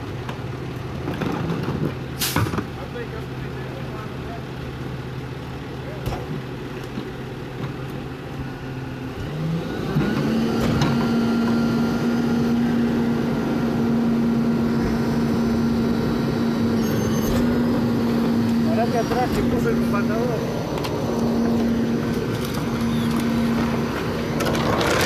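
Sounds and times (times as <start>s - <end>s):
garbage truck engine revving: 8.0s - 25.0s.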